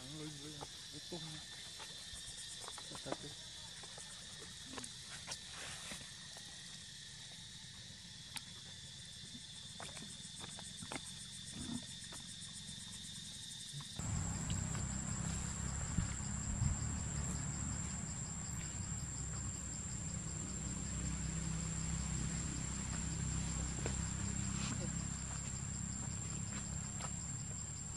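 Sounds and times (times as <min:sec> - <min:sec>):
high-pitched insect drone: 0:10.2 - 0:27.9
low rumble: 0:14.0 - 0:27.0.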